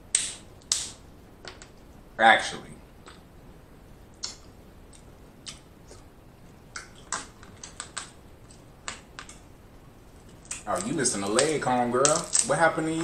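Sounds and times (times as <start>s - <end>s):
crab shell cracking: 6.7s - 9.4s, 10.2s - 12.6s.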